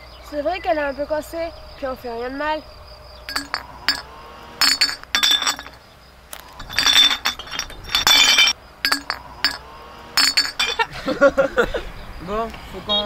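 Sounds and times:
glass bottles clinking: 0:03.3 - 0:10.9.

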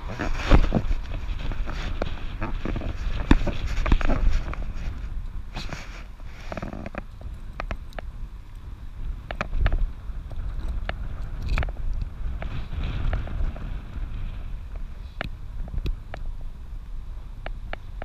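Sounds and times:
low wind rumble: 0:00.0 - 0:18.0
leash and collar hardware clicks: 0:06.6 - 0:13.2.

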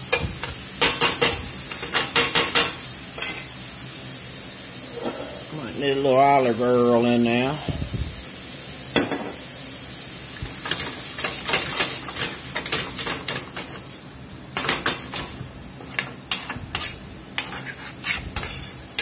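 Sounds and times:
vegetables sizzling in oil: 0:00.0 - 0:19.0
metal spoon stirring in pan: 0:15.9 - 0:19.0.

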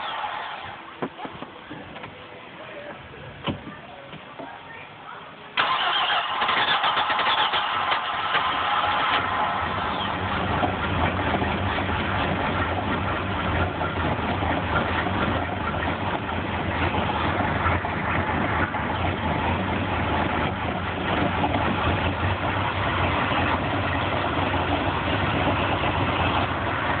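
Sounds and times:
boat engine idling: 0:00.0 - 0:27.0.

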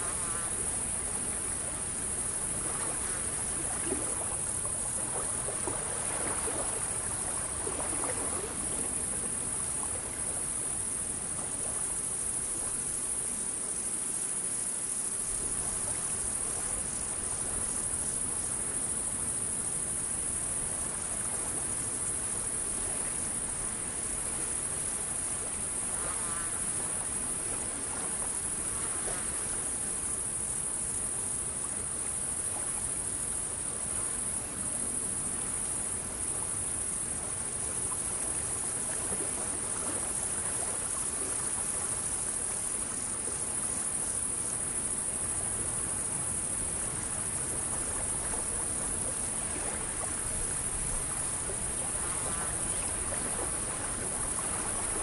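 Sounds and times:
crickets chirping: 0:00.0 - 0:55.0
soft even hiss: 0:00.0 - 0:55.0.

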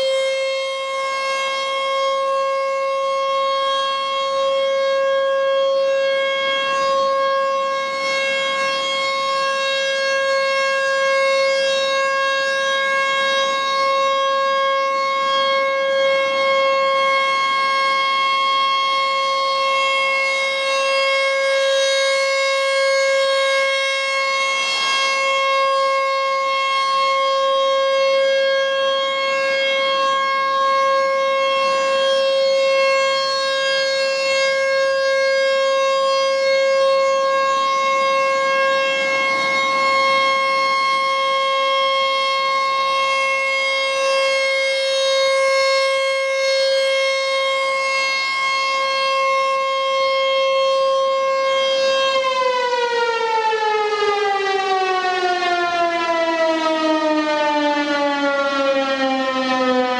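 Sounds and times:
warning siren steady tone: 0:00.0 - 0:59.9.

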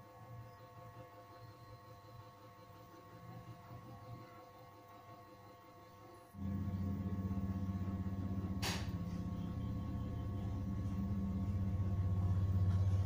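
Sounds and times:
pulsing low rumble: 0:06.4 - 0:13.0
sharp click: 0:08.6 - 0:09.0.

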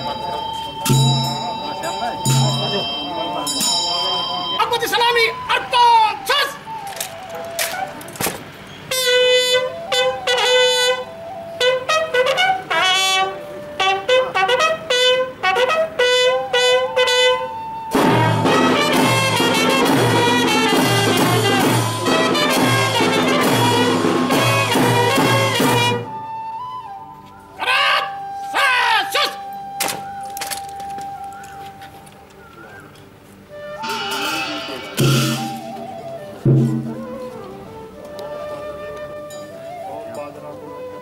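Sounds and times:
brass band playing: 0:08.9 - 0:26.3, 0:33.6 - 0:38.8
brass instrument melody: 0:08.9 - 0:26.4, 0:33.5 - 0:39.6.

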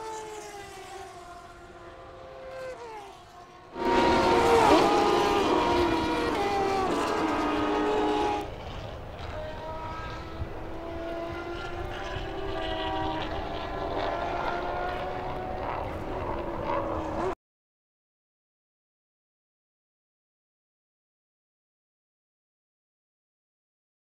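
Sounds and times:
race car engines running: 0:00.0 - 0:17.4.

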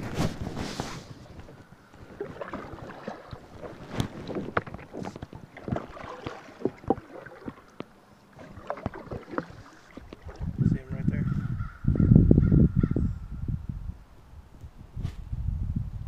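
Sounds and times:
plastic kayak knocks and rustles: 0:01.4 - 0:11.1.

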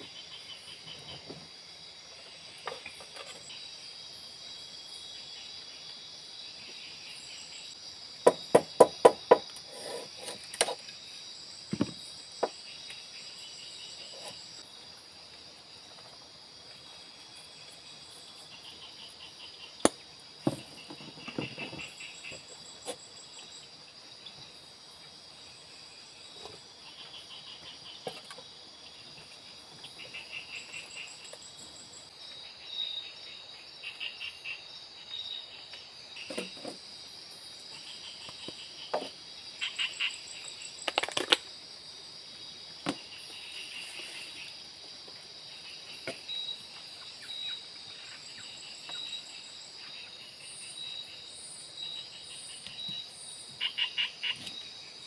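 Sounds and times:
crickets trilling: 0:00.0 - 0:55.0.

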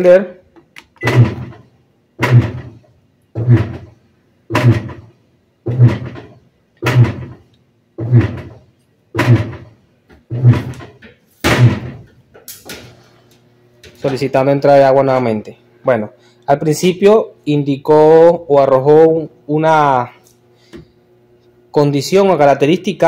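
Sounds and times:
washing machine agitator thumping: 0:01.0 - 0:02.8, 0:03.4 - 0:12.1.

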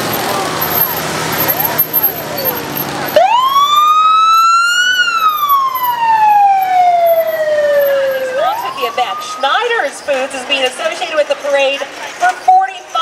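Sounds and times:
police siren wailing: 0:03.1 - 0:10.0.

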